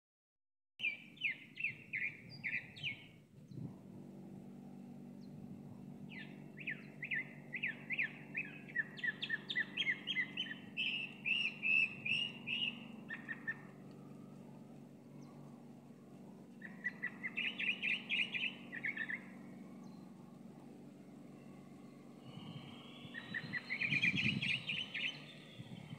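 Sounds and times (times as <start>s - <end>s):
bird singing repeated notes: 0.8s - 3.6s, 6.0s - 13.8s, 16.6s - 20.2s, 21.7s - 25.9s
faint low hum: 0.8s - 25.9s.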